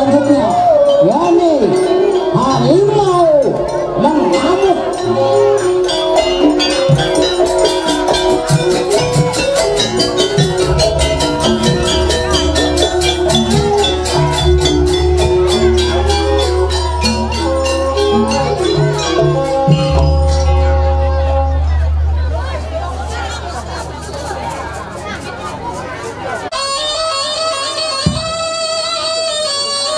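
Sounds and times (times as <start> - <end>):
kettle gong melody: 4.4 - 23.9
hand drum strokes: 5.7 - 26.5
deep gong hum: 9.7 - 23.6.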